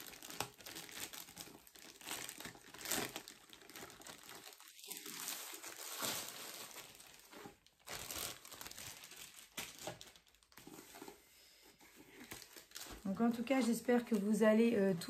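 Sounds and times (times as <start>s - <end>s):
canvas roll rustling: 0.0s - 11.2s
plastic wrapping crinkling: 0.0s - 11.2s, 11.8s - 15.0s.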